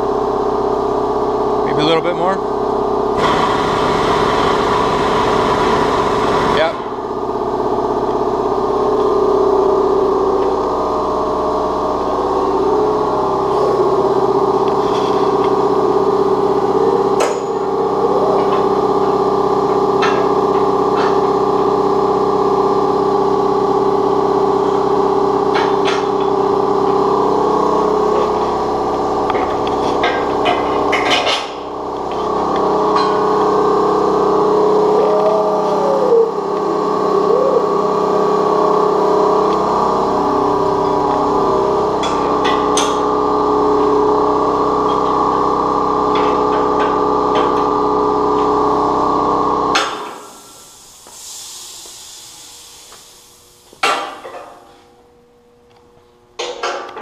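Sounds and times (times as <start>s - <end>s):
hydraulic ram humming: 2.6s - 51.1s.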